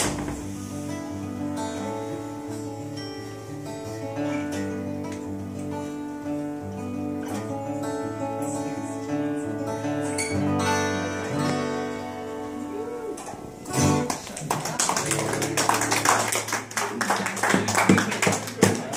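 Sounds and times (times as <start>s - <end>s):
acoustic guitar strumming: 0.0s - 14.4s.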